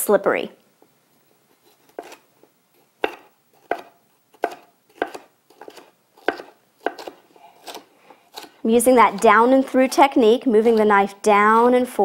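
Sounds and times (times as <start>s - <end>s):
knife chopping on wooden board: 3.0s - 8.5s.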